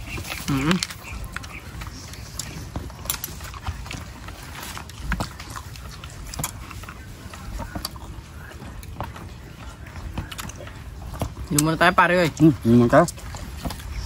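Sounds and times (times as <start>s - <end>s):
chewing and lip-smacking: 0.0s - 14.0s.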